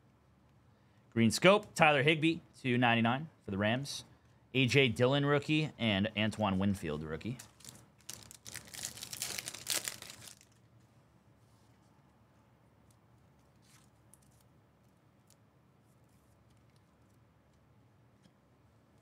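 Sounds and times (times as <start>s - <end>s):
wrapper crinkling and tearing: 7.4s - 10.7s.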